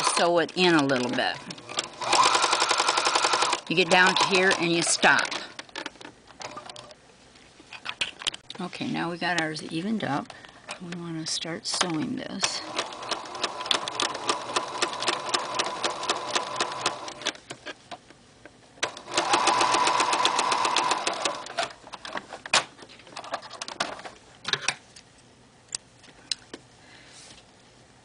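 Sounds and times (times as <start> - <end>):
sewing machine stitching: 0.0 - 5.6, 12.4 - 17.4, 18.8 - 21.7.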